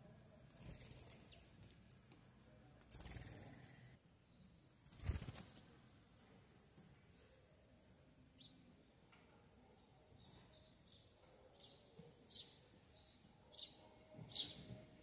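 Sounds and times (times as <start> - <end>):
bird wings fluttering: 0.5 - 1.7, 2.9 - 3.7, 4.8 - 5.6
faint high bird chirps: 9.8 - 14.8.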